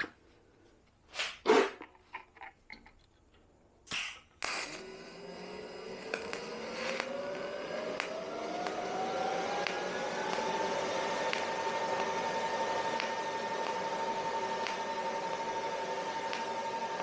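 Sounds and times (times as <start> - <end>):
machine noise with rising whine: 4.6 - 17.0.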